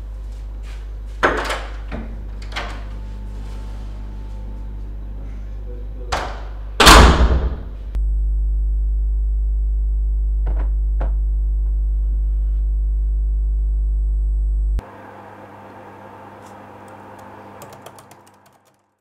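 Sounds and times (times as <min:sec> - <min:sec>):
door slamming shut: 0:06.2 - 0:07.8.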